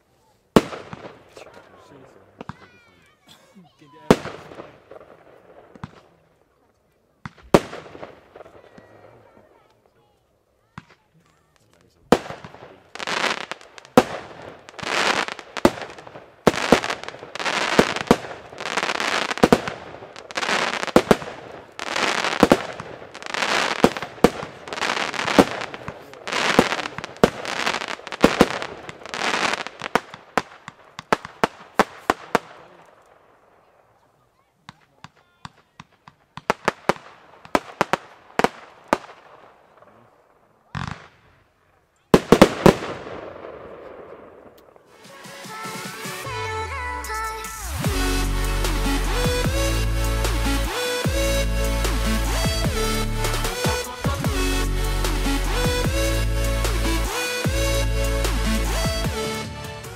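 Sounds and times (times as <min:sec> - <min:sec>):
crackling firework bursts: 0:00.0 - 0:59.9
firework shots launching: 0:00.5 - 0:02.8, 0:04.0 - 0:06.3, 0:07.2 - 0:09.1, 0:10.8 - 0:33.4, 0:34.7 - 0:40.0, 0:40.7 - 0:41.4, 0:42.1 - 0:59.9
scattered pops: 0:10.8 - 0:33.2.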